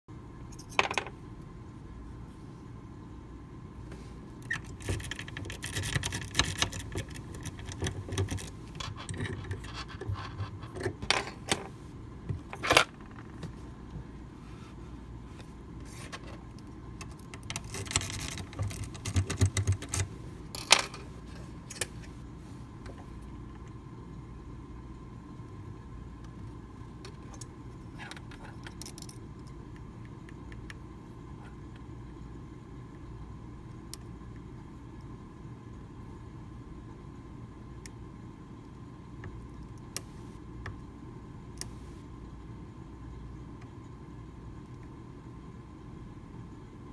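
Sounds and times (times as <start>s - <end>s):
lock picks clicking and scraping: 0.5s - 1.1s, 4.4s - 11.6s, 17.0s - 21.0s, 27.1s - 29.6s.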